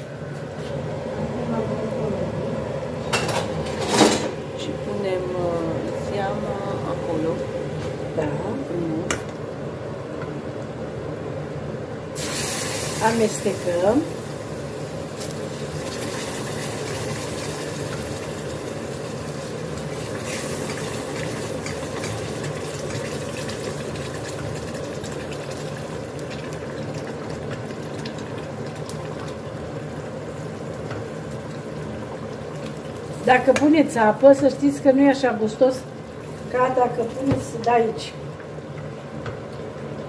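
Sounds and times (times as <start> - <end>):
stew bubbling in a pot: 12.2 - 40.0.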